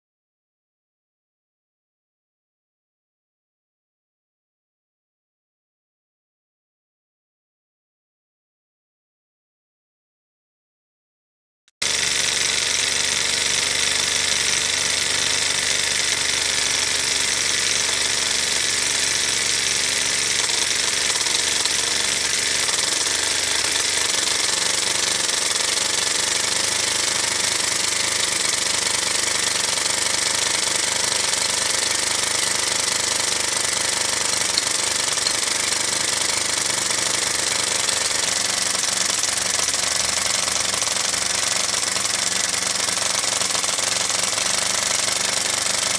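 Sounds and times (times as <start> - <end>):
model engine running: 11.8 - 45.9.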